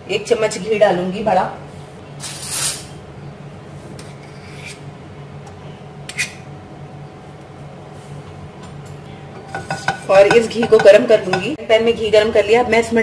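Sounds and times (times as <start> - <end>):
low steady hum: 0.0 - 13.0
spoon scraping: 9.4 - 11.5.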